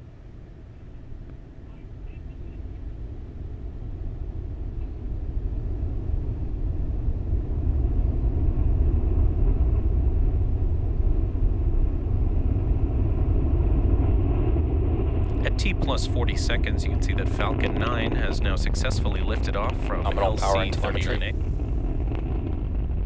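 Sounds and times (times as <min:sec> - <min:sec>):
rocket engines roaring: 0:00.6 - 0:23.0.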